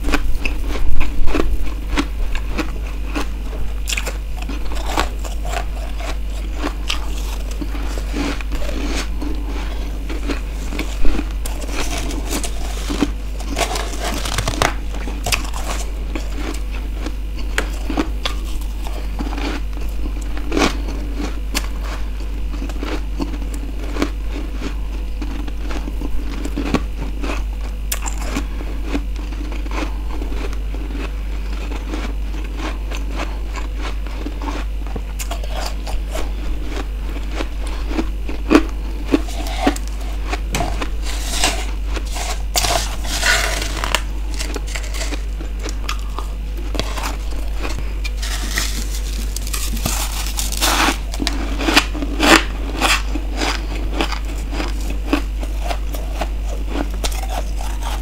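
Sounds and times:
frost being chewed with crunches: 0.0 - 58.0
steady low hum: 0.0 - 58.0
fingers scraping frost on plate: 39.1 - 45.3, 46.7 - 51.8.

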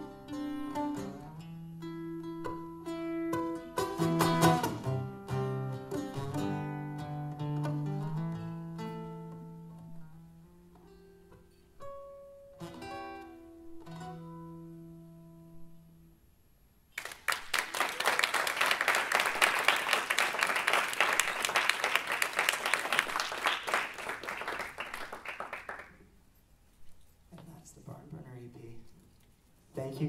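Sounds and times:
guitars strumming chords: 0.0 - 16.1
audience applause: 17.0 - 26.0.

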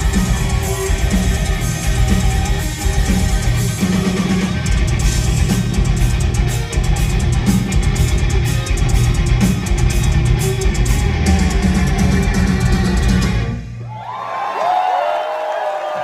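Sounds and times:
bass guitar: 0.0 - 13.8
distorted electric guitars: 0.0 - 13.8
pounding drum kit: 0.0 - 13.8.

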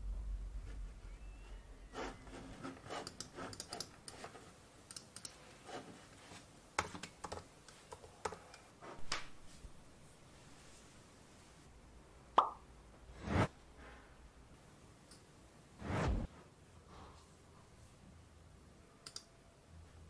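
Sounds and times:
mouse and keyboard clicks: 3.0 - 4.3.

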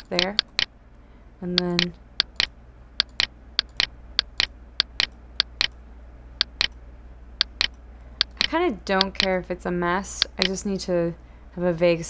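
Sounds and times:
computer mouse clicking: 0.0 - 0.7, 1.6 - 5.8, 6.4 - 6.8, 7.4 - 9.4, 10.2 - 10.6.

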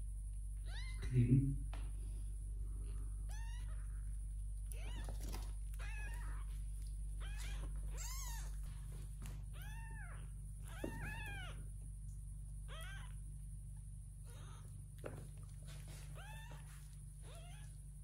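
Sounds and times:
kitten meowing: 0.6 - 1.1, 3.3 - 4.1, 4.7 - 6.6, 7.2 - 8.7, 9.5 - 11.7, 12.7 - 13.2, 14.2 - 14.7, 16.1 - 17.8.

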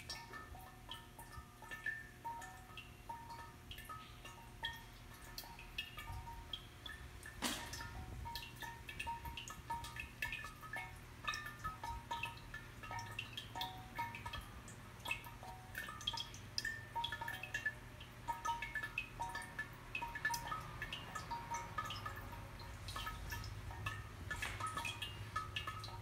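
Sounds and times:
water drops ringing in ceramic vessel: 0.0 - 26.0.

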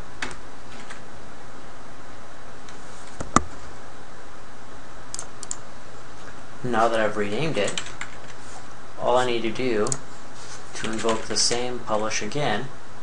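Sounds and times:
steady hiss: 5.0 - 13.0
computer keyboard clicks: 5.1 - 5.6, 10.8 - 11.6.

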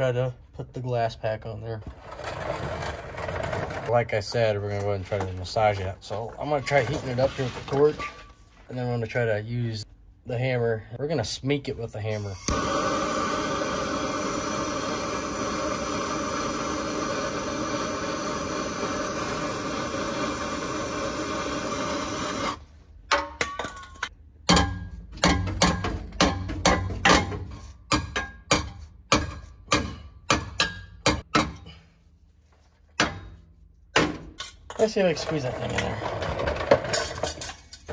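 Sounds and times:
gas torch flame roaring: 12.2 - 22.6
hammer striking metal pipe: 23.1 - 31.7, 33.0 - 33.4.

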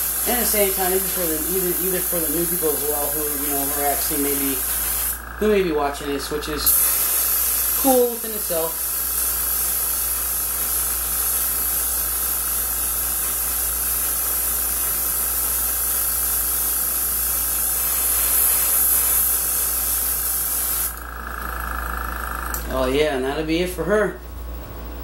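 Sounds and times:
airbrush spraying hiss: 0.0 - 5.3, 6.6 - 21.1.

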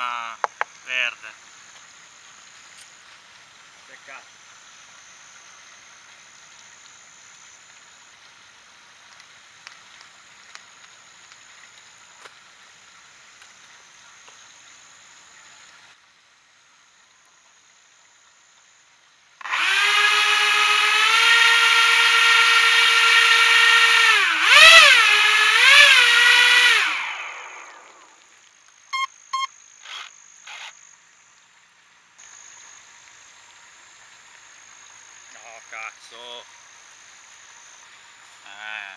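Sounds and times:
electric motors whining: 19.4 - 28.1, 29.0 - 30.8.

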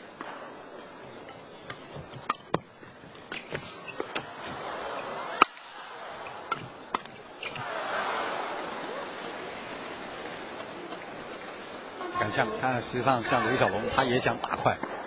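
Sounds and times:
arena crowd noise: 0.0 - 15.0
racket striking shuttlecock: 1.2 - 4.7, 5.3 - 7.7.

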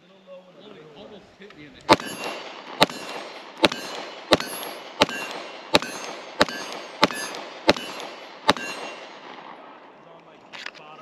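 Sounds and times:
pistol shots: 1.9 - 9.8.

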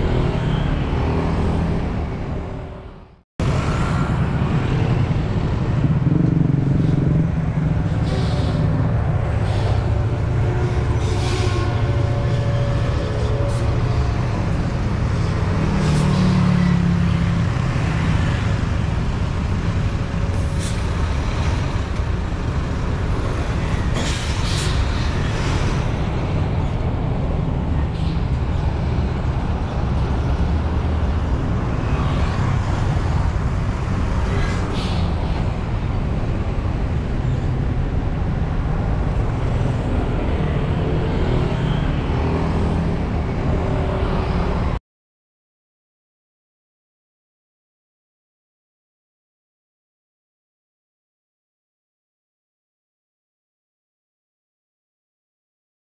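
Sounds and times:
road traffic rumbling: 0.0 - 44.8.

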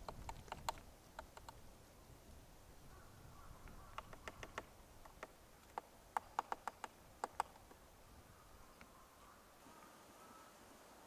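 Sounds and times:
woodpecker pecking bark: 0.0 - 1.6, 3.6 - 7.8.

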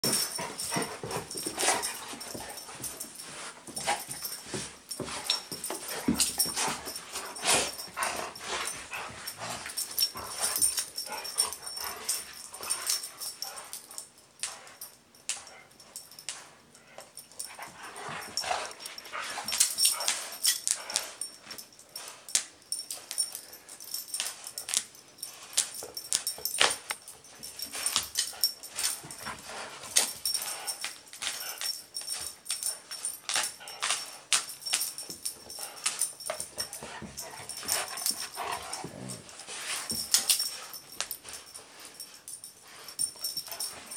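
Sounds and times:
dogs playing tug of war: 0.0 - 43.9.

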